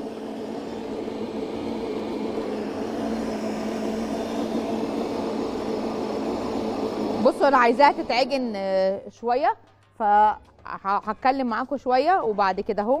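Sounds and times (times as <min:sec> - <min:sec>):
stand mixer motor humming: 0:00.0 - 0:08.8.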